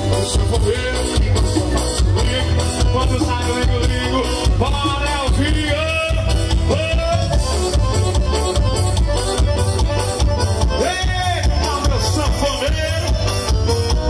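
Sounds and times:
accordion-led dance band: 0:00.0 - 0:14.0.

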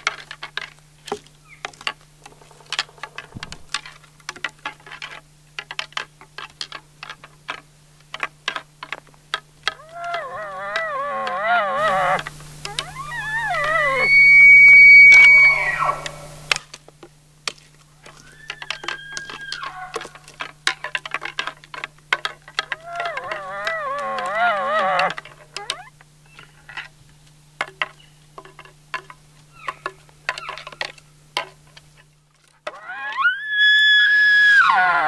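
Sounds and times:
warbling call through bugle tube: 0:09.6 - 0:16.6, 0:18.1 - 0:21.4, 0:22.6 - 0:25.9, 0:32.6 - 0:35.0
elk bugling whistle: 0:09.7 - 0:16.6, 0:18.2 - 0:20.3, 0:22.7 - 0:26.6, 0:32.7 - 0:35.0.

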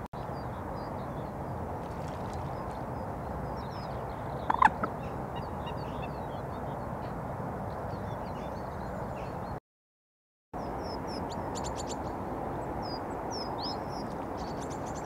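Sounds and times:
distant road traffic hum: 0:00.2 - 0:09.6, 0:10.6 - 0:15.0
small birds chirping: 0:01.9 - 0:07.2
loud bird call: 0:04.4 - 0:06.2.

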